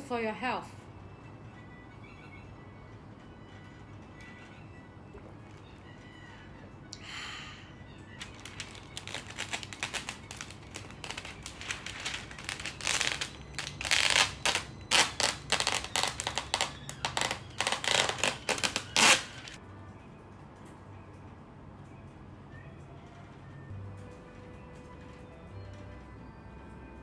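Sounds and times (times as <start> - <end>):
baking paper crackling and rustling: 8.2 - 19.6.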